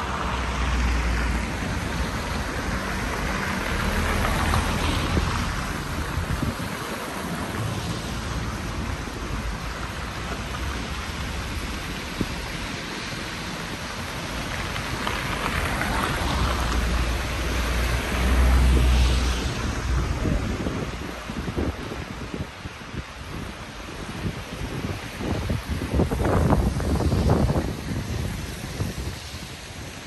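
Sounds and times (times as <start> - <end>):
steady rushing noise: 0.0 - 30.0.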